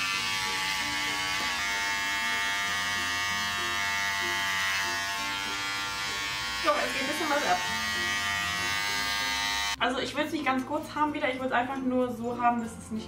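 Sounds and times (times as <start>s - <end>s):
electric hair clipper buzzing: 0.0s - 9.8s.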